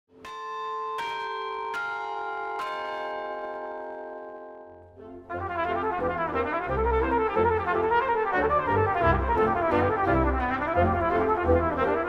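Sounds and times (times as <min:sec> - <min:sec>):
brass ensemble music: 0:05.0 - 0:12.0.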